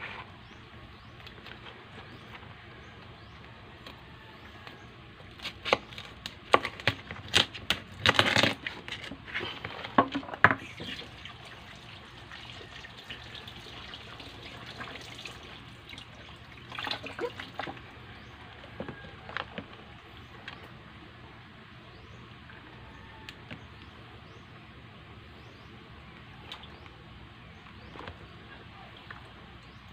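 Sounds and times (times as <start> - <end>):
water splashing in a sink: 10.6 - 17.9.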